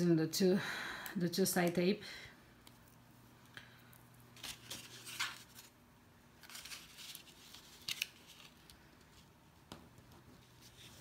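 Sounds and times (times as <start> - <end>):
paper rustling: 4.4 - 5.8, 6.4 - 9.3.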